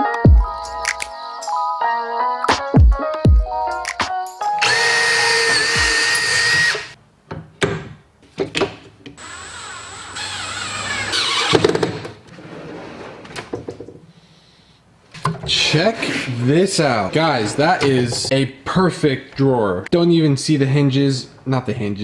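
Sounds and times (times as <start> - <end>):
cordless drill whining: 4.6 - 7.0, 9.2 - 11.8.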